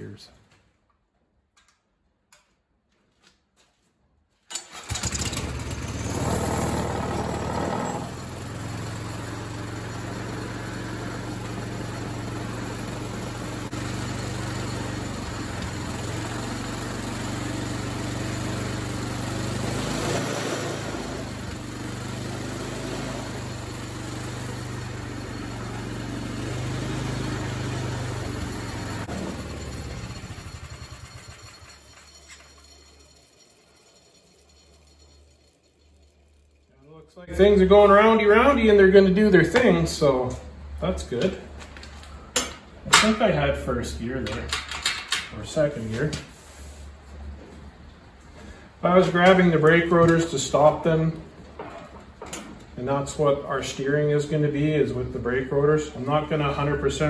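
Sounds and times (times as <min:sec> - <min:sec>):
small engine running: 0:04.6 - 0:36.8.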